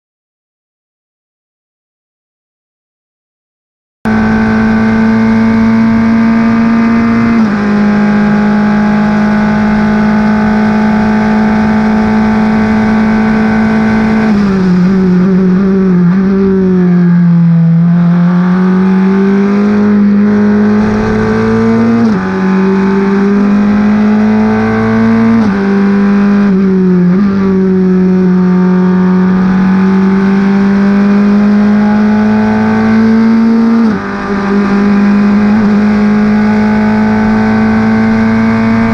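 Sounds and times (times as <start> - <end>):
race car engine at full throttle: 4.1 - 38.9
gear changes: 19.6 - 24.5.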